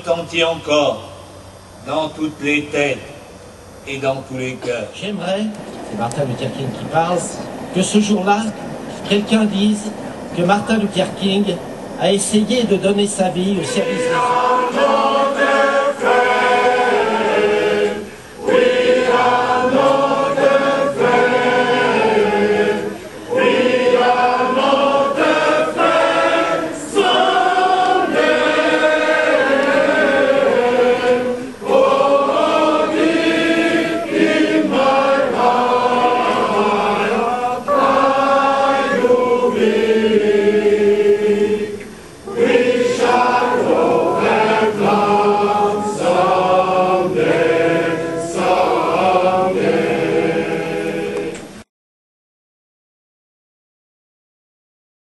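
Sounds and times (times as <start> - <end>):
choir singing: 12.8 - 51.6.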